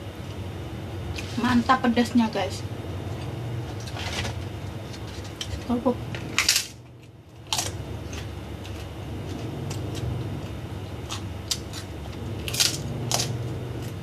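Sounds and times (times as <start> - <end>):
crunching fried cracker: 3.6 - 14.0.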